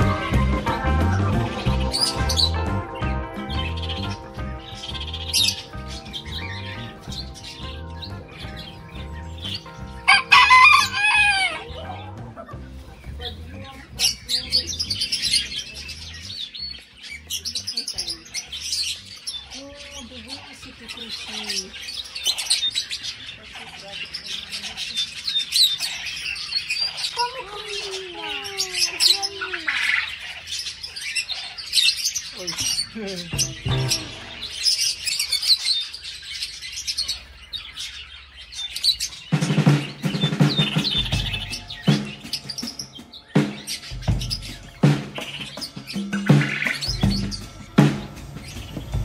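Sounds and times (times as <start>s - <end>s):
music with drum beat: 0.0s - 14.0s, 33.2s - 34.5s, 39.3s - 49.0s
small parrots chirping: 0.0s - 49.0s.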